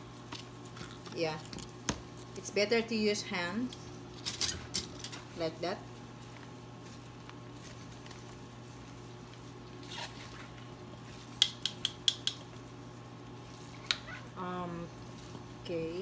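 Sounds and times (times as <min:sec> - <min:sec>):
gloved hands squishing food: 0:00.0 - 0:02.4, 0:05.2 - 0:16.0
steady low hum: 0:00.0 - 0:16.0
plastic spoon tapping bowl rim: 0:11.4 - 0:12.4.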